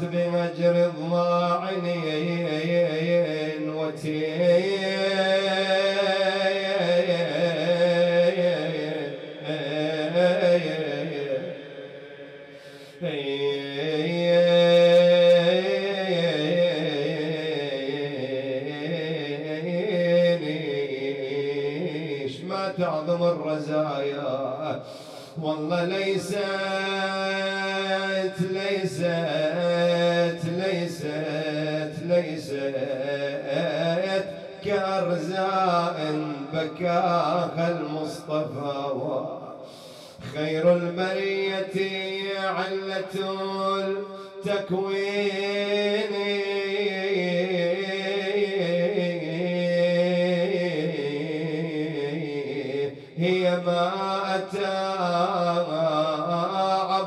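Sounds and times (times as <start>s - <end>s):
man chanting mournfully: 0.0s - 57.0s.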